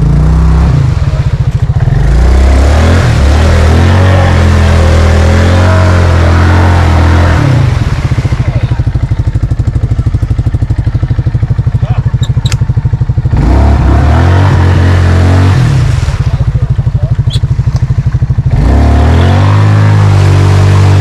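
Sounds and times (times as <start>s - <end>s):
atv engine idling: 0.0s - 2.2s, 6.3s - 13.8s, 15.8s - 19.2s
atv engine revving hard: 0.0s - 21.0s.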